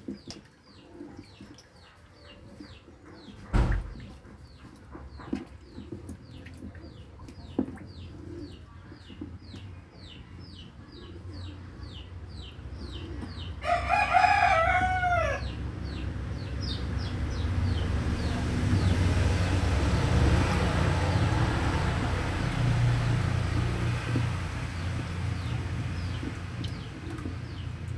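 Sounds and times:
rooster crowing: 0:13.6 - 0:15.5.

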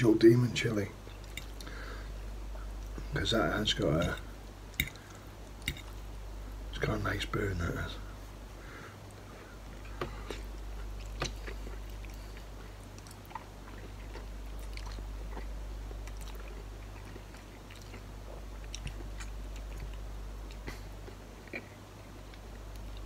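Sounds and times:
steady low hum: 0:00.0 - 0:23.0
man chewing noodles: 0:01.0 - 0:03.1, 0:03.9 - 0:06.1, 0:09.0 - 0:23.0.

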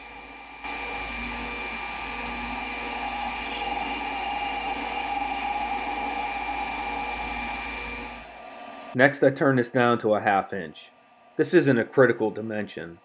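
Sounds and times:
metal lathe whining: 0:00.0 - 0:09.0.

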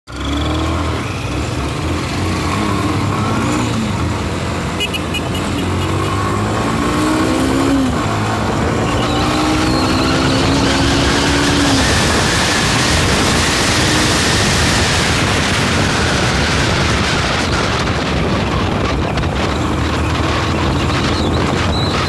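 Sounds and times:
motorcycle engine shifting gears: 0:00.1 - 0:22.0
wind rush: 0:06.2 - 0:22.0.

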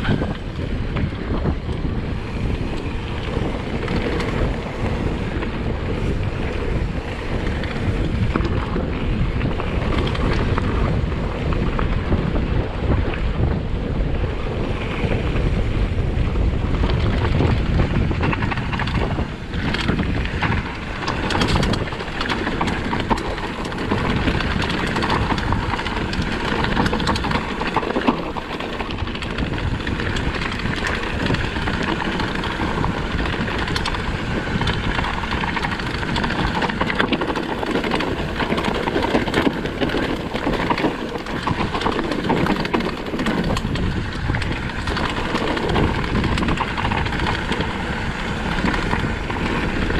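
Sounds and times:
bike knocks and rattles: 0:00.0 - 0:49.9
wind buffeting microphone: 0:00.0 - 0:49.9
tyre noise: 0:17.0 - 0:49.9.

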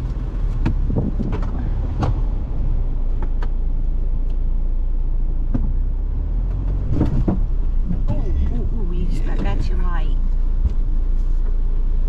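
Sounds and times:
vehicle engine crawling: 0:00.0 - 0:12.0
vehicle jolting knocks: 0:06.6 - 0:08.5.

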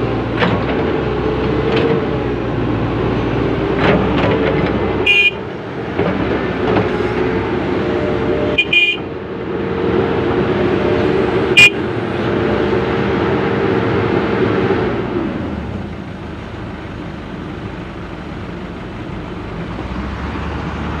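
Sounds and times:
excavator diesel engine and hydraulics: 0:00.0 - 0:21.0
short high horn toots: 0:05.0 - 0:05.4.

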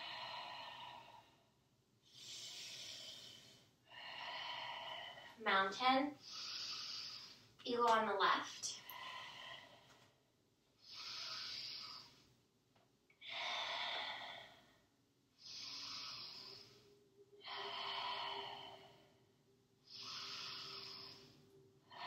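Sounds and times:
woman breathing deeply: 0:00.0 - 0:05.6, 0:06.2 - 0:07.6, 0:08.8 - 0:12.4, 0:13.1 - 0:22.0.

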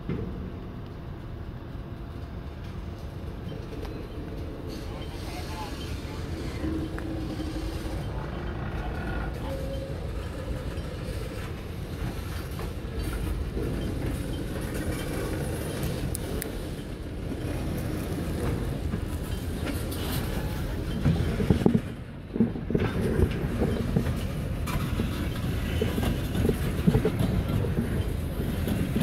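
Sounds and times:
train wheels rumbling on rail: 0:00.0 - 0:29.0.

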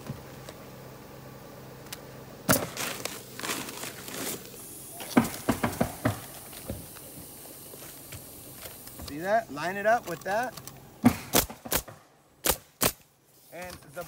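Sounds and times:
shingles rustling and slapping: 0:02.5 - 0:07.1.

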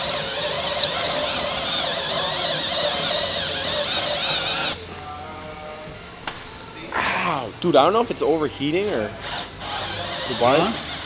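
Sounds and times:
power tool whirring grind: 0:00.0 - 0:04.8, 0:08.7 - 0:11.0.

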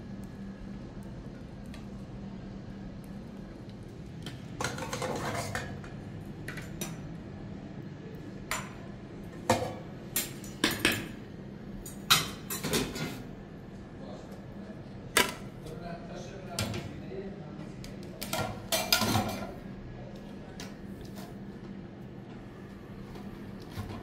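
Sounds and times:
dishes and cutlery clinking: 0:04.6 - 0:07.0, 0:11.9 - 0:13.3, 0:18.4 - 0:19.6
dishes scraping clatter: 0:04.6 - 0:07.0, 0:11.9 - 0:13.3, 0:18.4 - 0:19.6.

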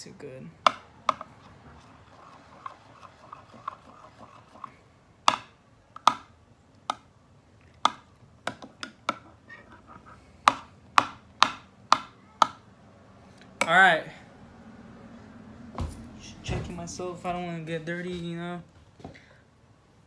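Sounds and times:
utensil stirring thick glue: 0:01.1 - 0:04.9.

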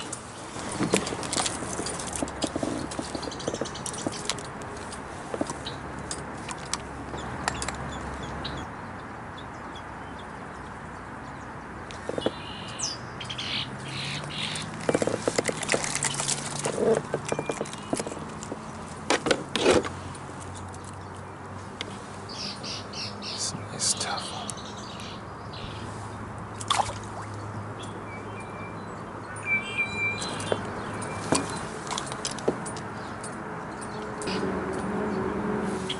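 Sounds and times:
kayak knocking and rustling in reeds: 0:00.0 - 0:07.3, 0:12.0 - 0:12.4, 0:14.3 - 0:20.8, 0:30.4 - 0:32.6
steady outdoor hiss: 0:00.0 - 0:35.9
small birds chirping: 0:02.5 - 0:04.4, 0:07.0 - 0:15.2, 0:15.9 - 0:19.0, 0:20.5 - 0:31.9.

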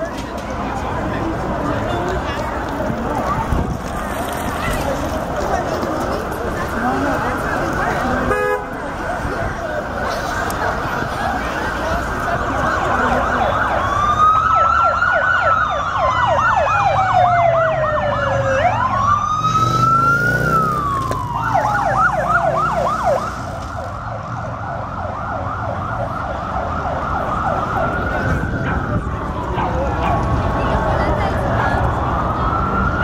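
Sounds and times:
siren wailing: 0:12.3 - 0:33.0
siren yelping: 0:12.5 - 0:31.1.

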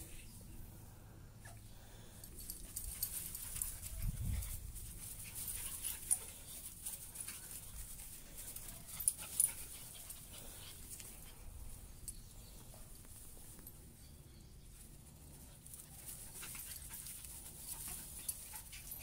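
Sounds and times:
puppies panting: 0:01.4 - 0:12.1, 0:15.3 - 0:19.0.

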